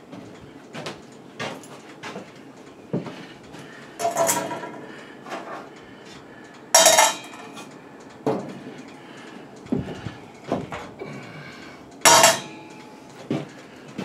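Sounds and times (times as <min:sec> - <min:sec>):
loud bright metal clank: 0:06.8 - 0:07.4, 0:12.0 - 0:12.7
metal objects clinking: 0:06.8 - 0:07.6, 0:12.1 - 0:12.6.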